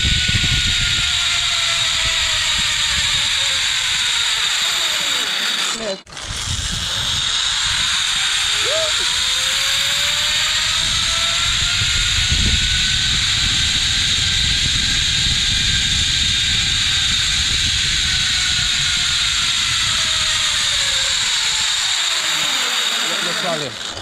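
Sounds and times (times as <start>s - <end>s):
wind rush on microphone: 0.0s - 4.0s, 6.1s - 21.8s
zipline pulleys whirring on cable: 0.0s - 24.0s.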